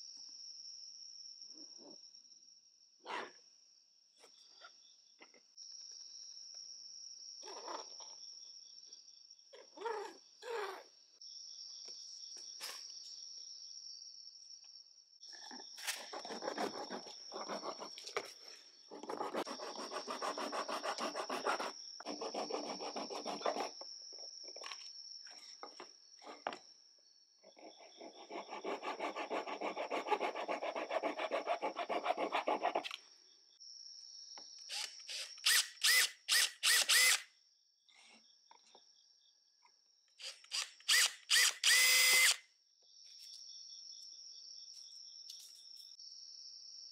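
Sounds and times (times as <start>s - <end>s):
high insect trill: 4.3s - 39.5s, 40.1s - 46.9s
hand saw cutting plastic: 15.9s - 18.0s
pen scratching: 16.0s - 18.3s, 19.0s - 23.8s, 28.0s - 32.9s.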